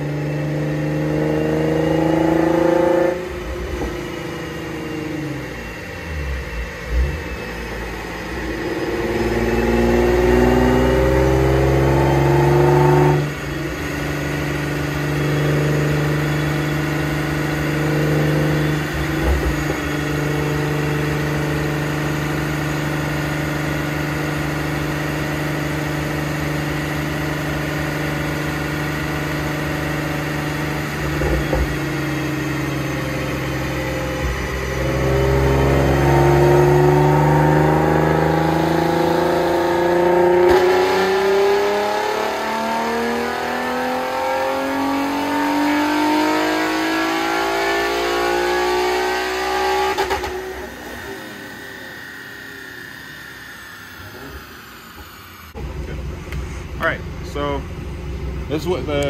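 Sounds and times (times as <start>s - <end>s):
car engine revving on a dyno: 0.0s - 59.0s.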